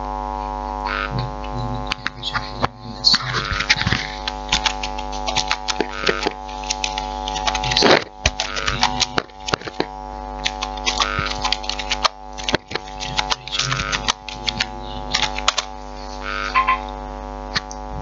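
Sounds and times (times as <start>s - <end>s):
steady electrical hum: 0.0s - 18.0s
keyboard keys clicking: 3.3s - 15.7s.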